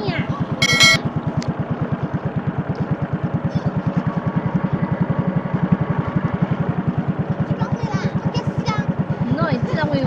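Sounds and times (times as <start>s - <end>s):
small boat engine putter: 0.4s - 10.0s.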